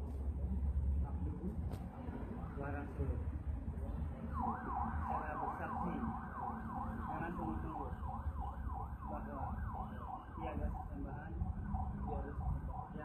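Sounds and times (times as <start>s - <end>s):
steady low rumble: 0.0s - 5.6s
siren yelping: 4.3s - 13.0s.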